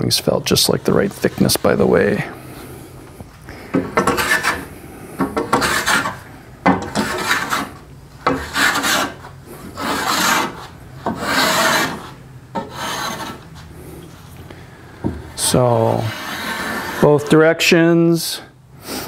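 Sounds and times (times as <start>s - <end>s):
block plane shaving wood: 3.7s - 13.4s, 15.4s - 17.3s.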